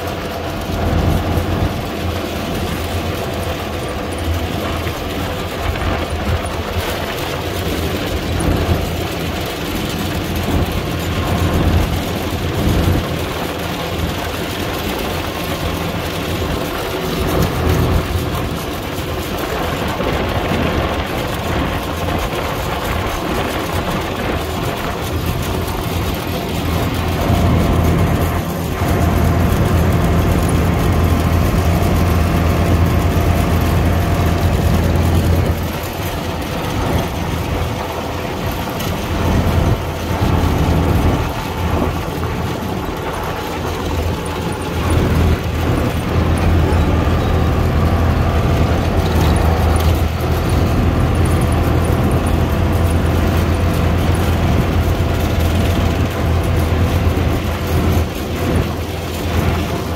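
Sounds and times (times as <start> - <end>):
combine harvester engine drone: 0.0 - 59.9.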